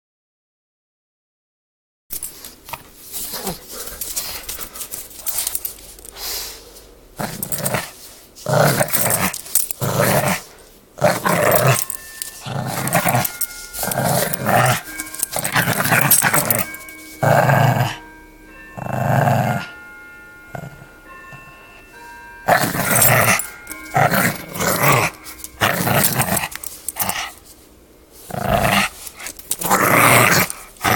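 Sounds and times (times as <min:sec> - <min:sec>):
puppy play-growling: 0:02.7 - 0:06.6, 0:07.2 - 0:18.0, 0:18.8 - 0:19.7, 0:20.5 - 0:20.9, 0:22.4 - 0:27.5, 0:28.2 - 0:30.9.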